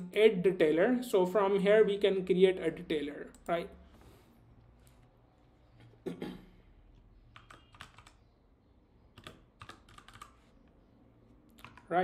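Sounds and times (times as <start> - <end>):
computer keyboard typing: 7.2 - 8.3, 9.1 - 10.6, 11.5 - 12.0.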